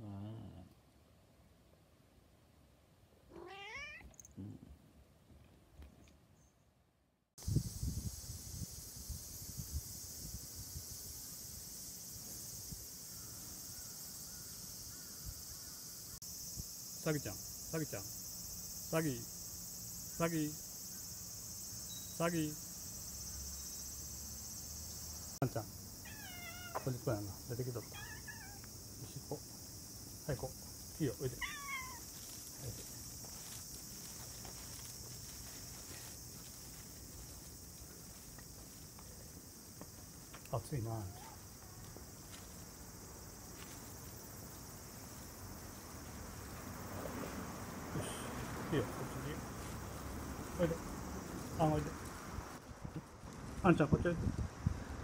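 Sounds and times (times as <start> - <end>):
high-pitched insect chorus: 7.4 - 55.0
footsteps scuffing on concrete: 31.7 - 40.4, 41.3 - 42.8, 43.4 - 47.4.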